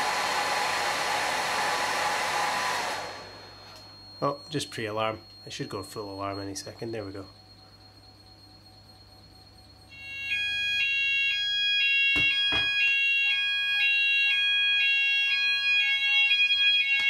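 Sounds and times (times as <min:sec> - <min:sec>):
fire alarm sounders: 0:03.0 - 0:17.0
sharp knocks: 0:12.2 - 0:12.8.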